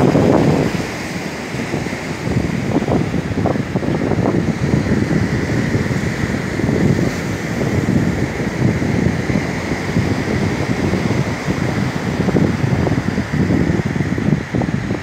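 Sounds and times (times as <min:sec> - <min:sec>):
ocean surf washing: 0:00.0 - 0:15.0
wind buffeting microphone: 0:00.0 - 0:15.0.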